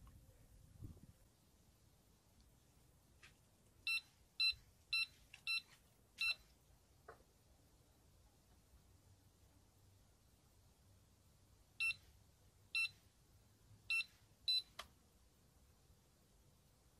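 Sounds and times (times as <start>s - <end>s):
bite alarm beeps: 11.8s - 12.0s, 12.8s - 13.0s, 13.9s - 14.7s.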